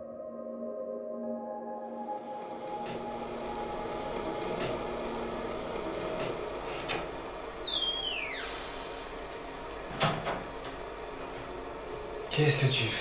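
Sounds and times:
low ambient drone: 0:00.0 - 0:13.0
high squeal falling in pitch: 0:07.4 - 0:08.9.

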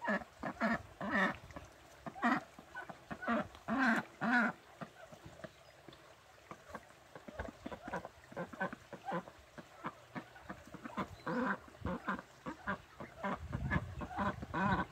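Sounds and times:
ducks quacking: 0:00.0 - 0:05.6, 0:06.4 - 0:14.9.

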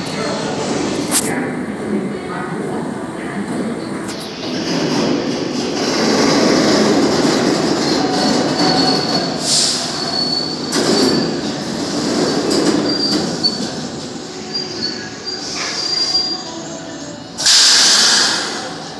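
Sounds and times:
subway wheels rumbling on rail: 0:00.0 - 0:18.9
high wheel squeal: 0:05.8 - 0:18.7
burst of hiss: 0:17.4 - 0:18.8.

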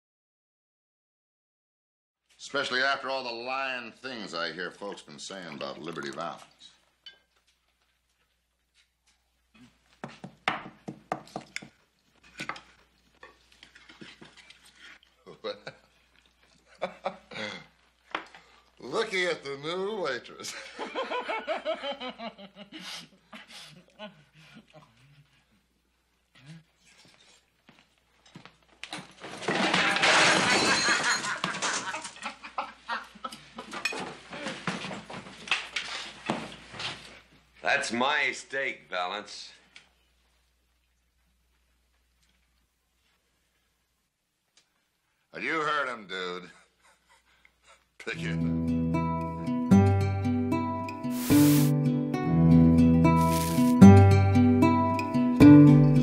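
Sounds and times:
men laughing: 0:16.7 - 0:17.7, 0:20.4 - 0:24.3, 0:30.4 - 0:33.8, 0:46.4 - 0:47.9.

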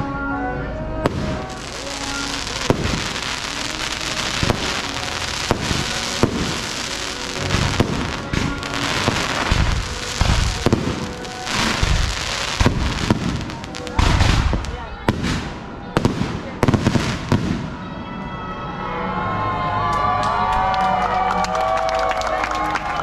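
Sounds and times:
fireworks hissing crackle: 0:01.0 - 0:17.7
fireworks bangs: 0:01.0 - 0:17.9
low fireworks booms: 0:01.0 - 0:18.0.

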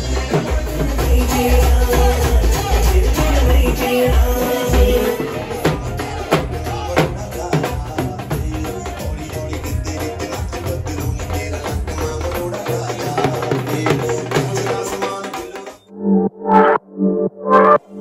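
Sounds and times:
dhol drums beating: 0:00.0 - 0:15.8
loud dance music: 0:00.0 - 0:15.9
slower music with pulsing notes: 0:15.9 - 0:18.0.

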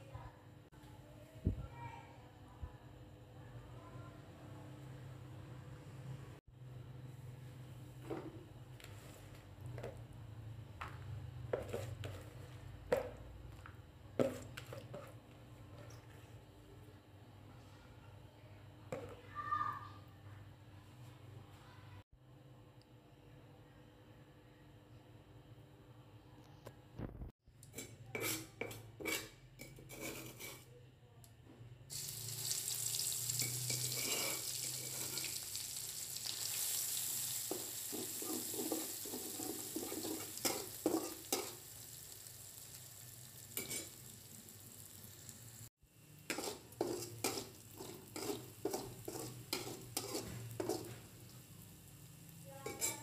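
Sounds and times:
spatula scraping a wok: 0:11.6 - 0:12.7, 0:27.7 - 0:30.8, 0:32.8 - 0:35.6, 0:36.6 - 0:42.7, 0:43.3 - 0:44.2, 0:46.2 - 0:51.2, 0:52.6 - 0:53.0
paste sizzling in hot oil: 0:31.9 - 0:53.0.

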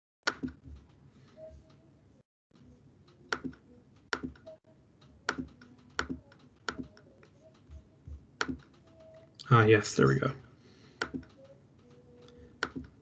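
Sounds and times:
computer mouse clicks: 0:02.6 - 0:09.3, 0:11.0 - 0:13.0.

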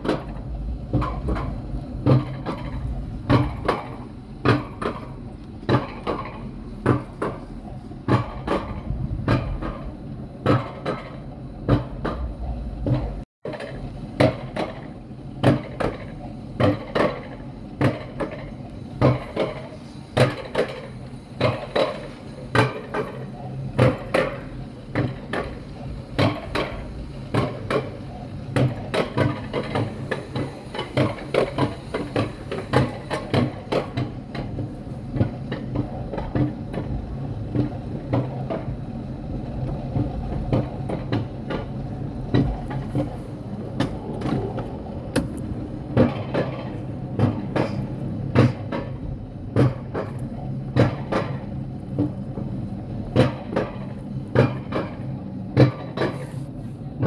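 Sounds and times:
steady low hum: 0:21.0 - 0:55.6.

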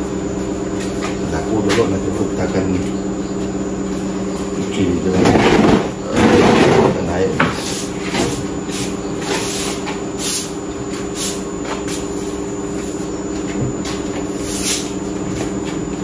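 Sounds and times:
steady mechanical hum: 0:00.0 - 0:16.0
broom sweeping concrete floor: 0:07.4 - 0:15.8.

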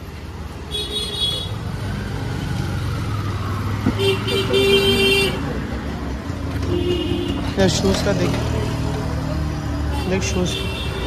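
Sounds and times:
street chatter: 0:00.0 - 0:11.0
vehicle horn honking: 0:06.6 - 0:07.4.

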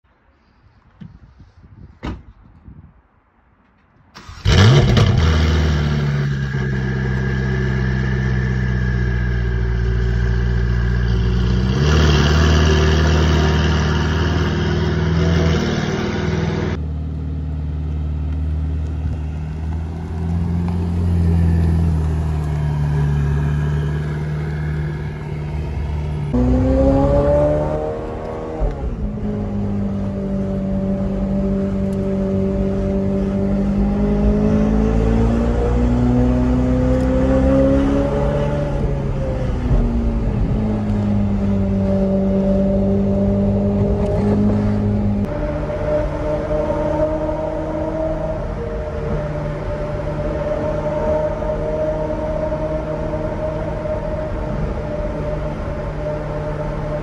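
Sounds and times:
car engine starting and idling: 0:04.1 - 0:57.0.

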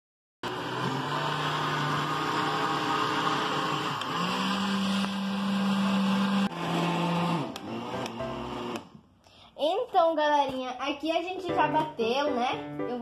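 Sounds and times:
blender whirring: 0:00.4 - 0:09.0.

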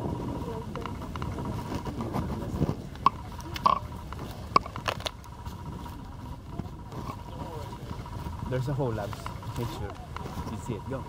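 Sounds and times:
twigs snapping: 0:02.9 - 0:05.6.

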